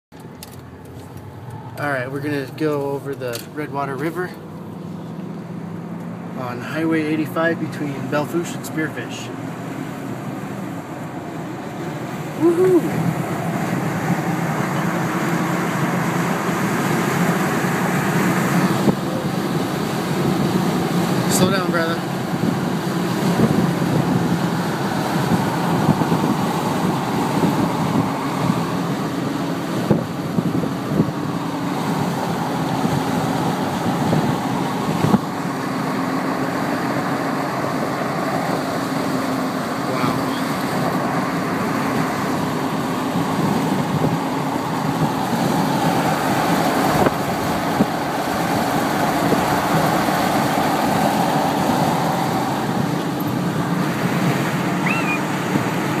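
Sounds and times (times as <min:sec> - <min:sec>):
tyres on pavement: 0:00.1 - 0:06.4.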